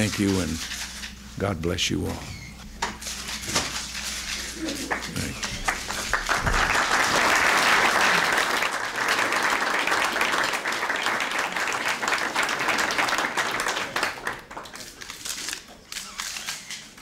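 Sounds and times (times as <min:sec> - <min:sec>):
audience applause: 0:04.6 - 0:15.0.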